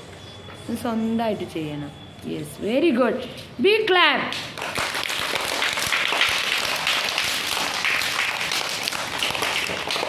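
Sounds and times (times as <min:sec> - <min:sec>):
children clapping: 0:04.3 - 0:10.0.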